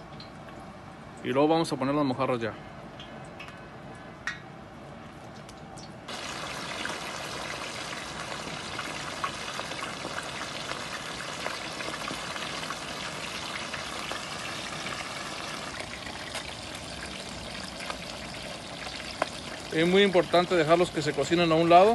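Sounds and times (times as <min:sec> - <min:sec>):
oil popping: 0:05.4 - 0:21.9
oil frying and sizzling: 0:06.1 - 0:21.9.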